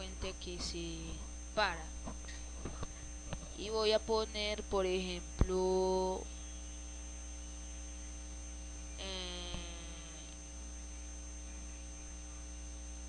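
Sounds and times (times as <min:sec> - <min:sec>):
electrical mains hum: 0:00.0 - 0:13.0
faint high whine: 0:00.0 - 0:13.0
short vocal sound: 0:09.0 - 0:10.3.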